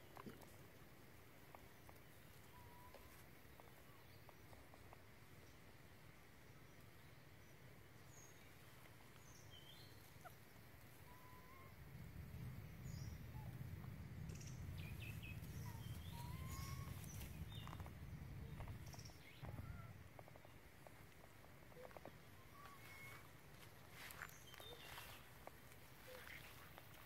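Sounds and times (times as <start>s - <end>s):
small birds chirping: 0.0s - 27.0s
low rumbling noise: 11.7s - 26.0s.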